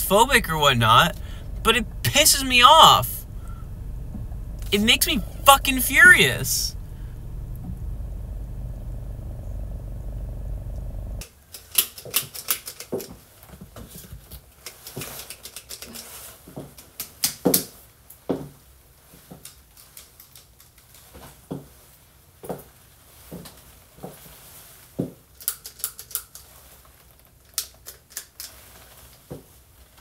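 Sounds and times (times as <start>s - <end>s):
car cabin rumble: 0.0s - 11.2s.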